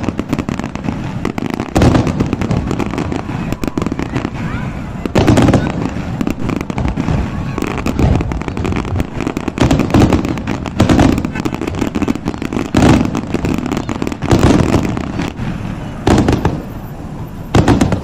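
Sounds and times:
fireworks bangs and crackling: 0:00.0 - 0:18.0
loud fireworks booms: 0:00.0 - 0:18.0.

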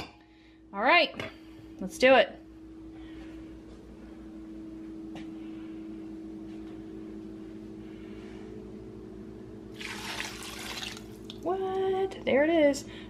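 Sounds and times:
steady low hum: 0:00.0 - 0:13.0
thick sauce pouring: 0:09.8 - 0:11.4.

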